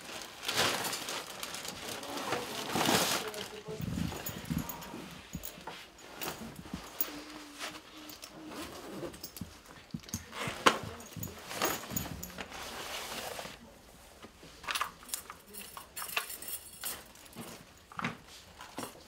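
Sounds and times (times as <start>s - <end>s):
backpack fabric rustling: 0.0s - 13.6s.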